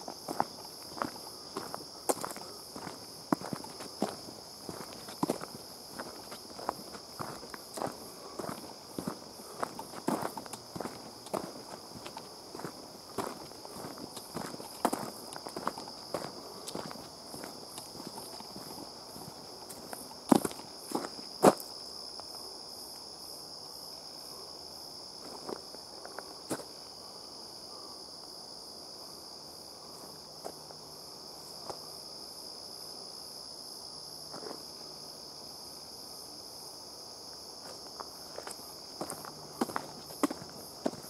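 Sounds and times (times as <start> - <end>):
footsteps on a dirt trail: 0.0 - 21.8, 34.3 - 34.7, 37.6 - 41.0
crickets chirping: 0.0 - 41.0.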